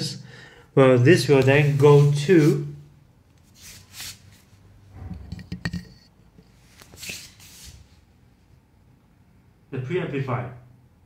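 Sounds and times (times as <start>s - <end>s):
small clicks and knocks: 5.1s - 6.5s.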